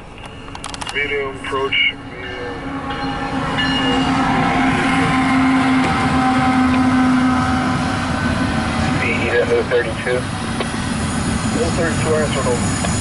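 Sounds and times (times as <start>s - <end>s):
diesel locomotive passing: 0.0s - 13.0s
train low rumble: 0.0s - 13.0s.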